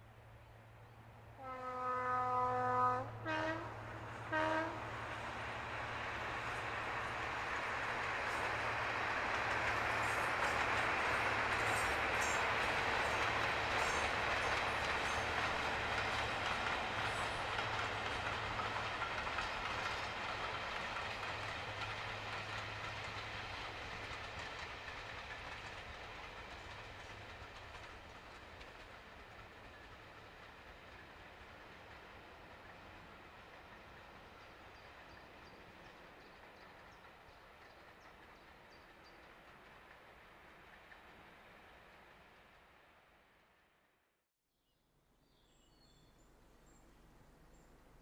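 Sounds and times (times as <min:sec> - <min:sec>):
train wheels clicking over rail joints: 0:06.2 - 0:41.2.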